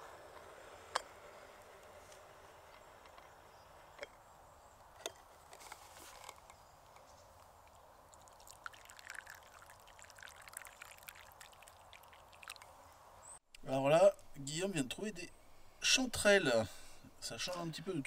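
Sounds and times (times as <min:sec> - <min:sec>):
liquid pouring into cup: 0:08.1 - 0:12.7.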